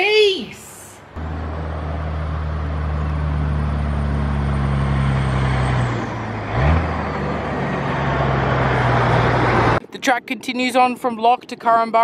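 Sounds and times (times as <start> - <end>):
road noise hiss: 0.4 - 5.6
vehicle engine humming: 0.4 - 9.8.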